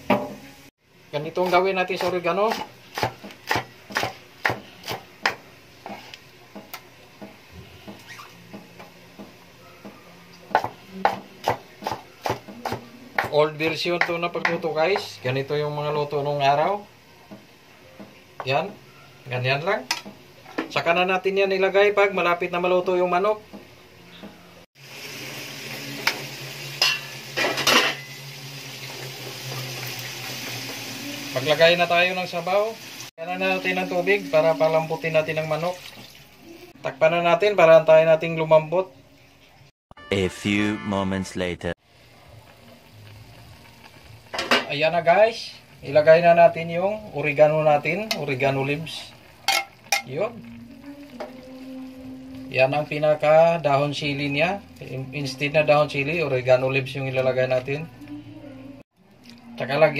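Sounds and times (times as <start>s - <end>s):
light sizzle: 0.0s - 12.8s, 24.8s - 37.0s, 41.9s - 59.9s
knife chopping on cutting board: 1.4s - 6.0s.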